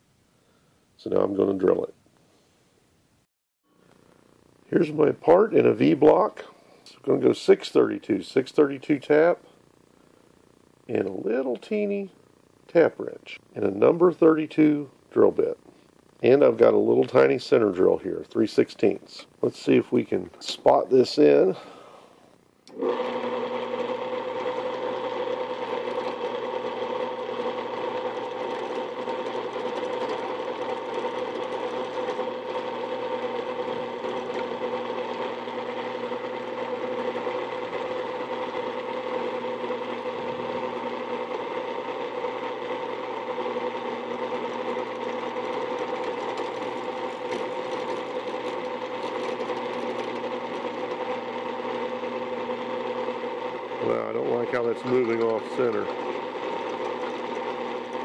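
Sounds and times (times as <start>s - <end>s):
drill press humming and whining: 22.7s - 58.0s.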